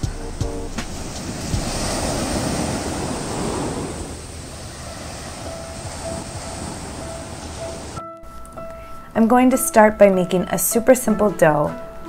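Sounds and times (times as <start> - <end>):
wind on microphone: 0.0 - 8.0
ocean surf on rocky shore: 0.6 - 8.0.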